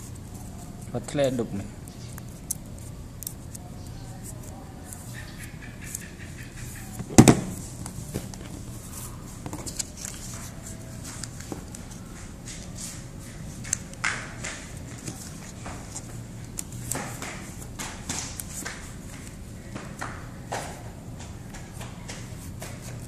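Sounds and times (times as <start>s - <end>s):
paper rustling and crackling: 6.6s - 19.5s.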